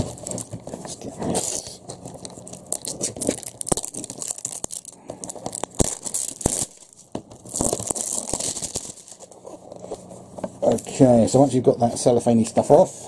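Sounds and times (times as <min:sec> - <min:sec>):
cellophane crinkling and tearing: 0:00.0 - 0:09.9.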